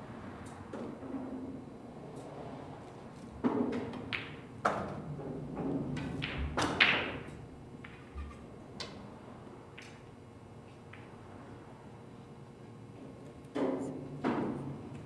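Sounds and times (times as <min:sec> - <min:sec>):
pool balls clacking: 0:03.4 - 0:09.0.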